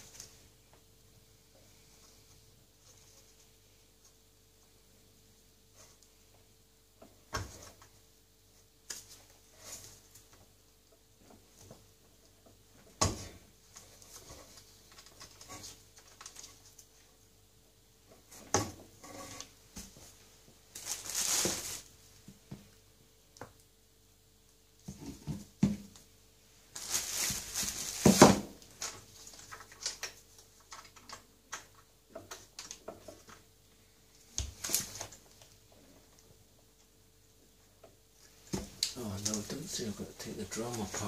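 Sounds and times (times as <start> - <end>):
scraping and rustling: 18.2 - 21.9, 26.7 - 31.3.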